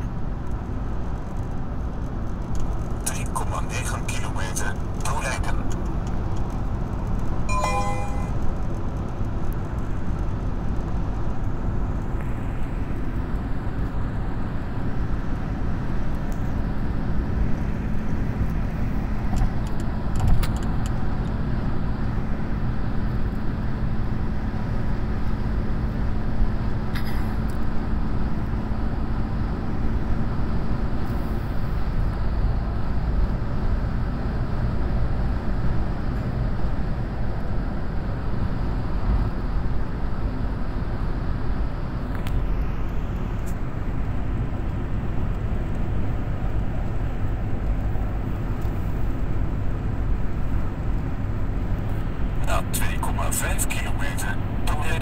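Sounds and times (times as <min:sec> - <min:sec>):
car cabin road noise: 0:00.0 - 0:55.0.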